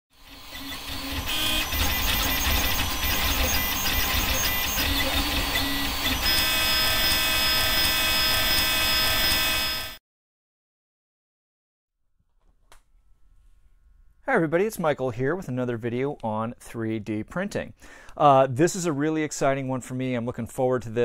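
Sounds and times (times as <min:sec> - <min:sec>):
printer stepper motors whining: 0:00.1 - 0:10.0.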